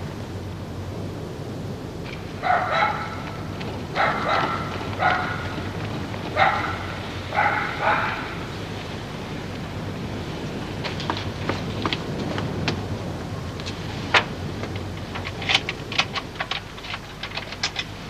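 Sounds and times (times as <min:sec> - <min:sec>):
steady low rumble: 0:00.0 - 0:18.0
dog barking: 0:02.4 - 0:05.6, 0:06.3 - 0:08.5.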